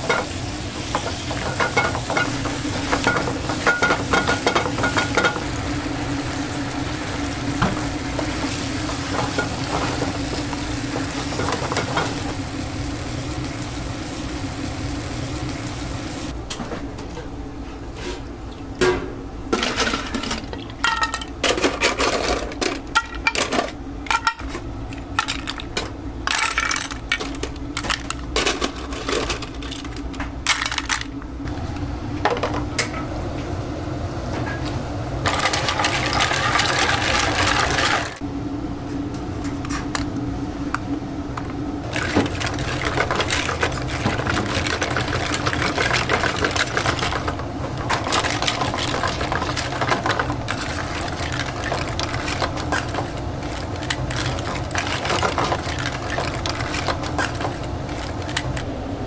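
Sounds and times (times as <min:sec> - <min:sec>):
seafood sizzling in a frying pan: 0:00.0 - 0:16.3.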